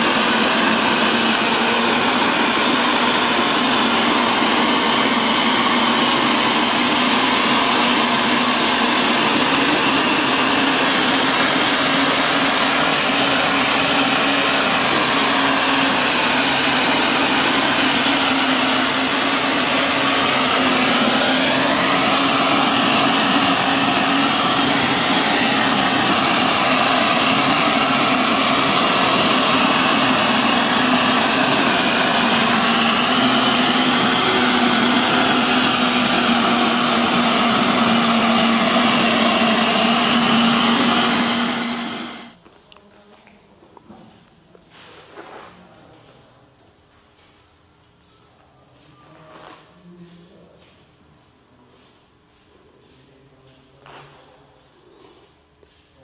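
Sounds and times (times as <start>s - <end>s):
machinery running: 0.0s - 42.4s.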